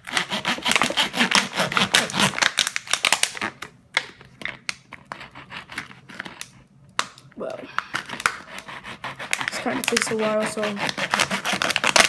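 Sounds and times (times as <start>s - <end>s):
plastic bottle crackling: 0.6s - 5.2s.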